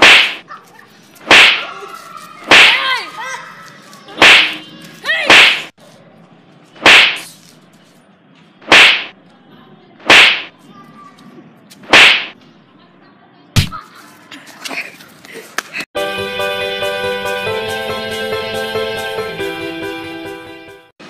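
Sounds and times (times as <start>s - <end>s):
punch and kick hit smacks: 0.0s - 0.4s, 1.3s - 1.7s, 2.5s - 2.8s, 4.2s - 4.6s, 5.3s - 5.7s, 6.8s - 7.2s, 8.7s - 9.1s, 10.1s - 10.5s, 11.9s - 12.4s, 13.6s - 13.8s.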